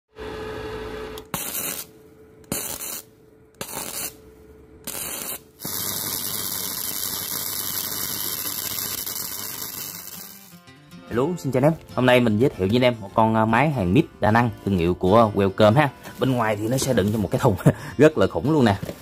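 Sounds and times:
welder arc crackling: 0:01.2 - 0:10.6.

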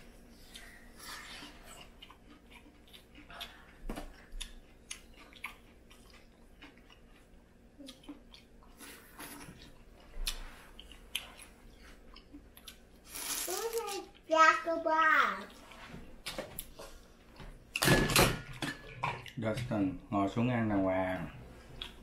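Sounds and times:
chewing: 0:00.4 - 0:14.3.

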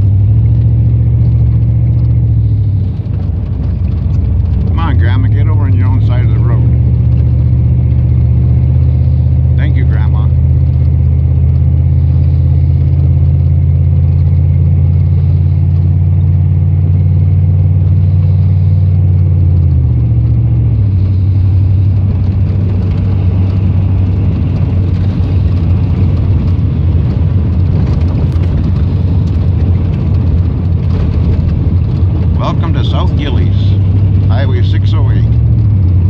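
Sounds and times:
vehicle engine and road drone: 0:00.0 - 0:36.0.

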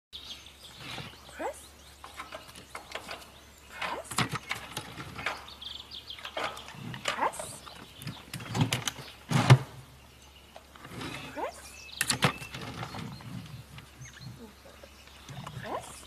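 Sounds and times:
knocks and rattles: 0:02.0 - 0:09.8
faint bird chirps: 0:10.1 - 0:16.0.

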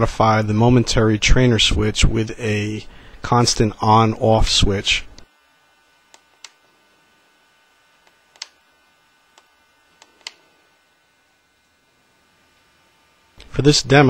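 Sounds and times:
faint clicks of remote transmitter: 0:06.1 - 0:06.6, 0:08.0 - 0:08.6, 0:09.3 - 0:10.4.

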